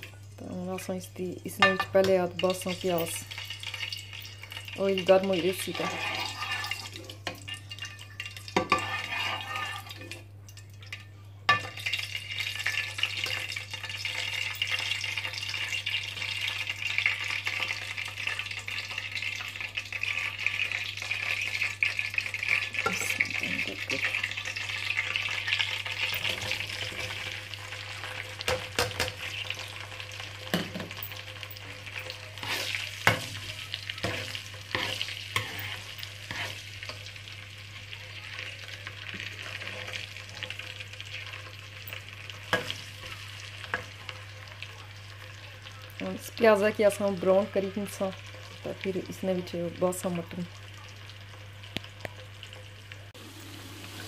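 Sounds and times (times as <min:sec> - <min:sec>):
onions sizzling in oil: 0:00.0 - 0:54.0
metal ladle scraping pot: 0:05.0 - 0:10.2, 0:28.4 - 0:36.7.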